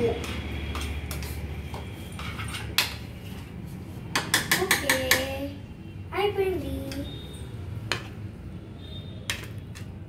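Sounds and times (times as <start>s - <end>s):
spatula tapping against bowl: 4.1s - 5.4s.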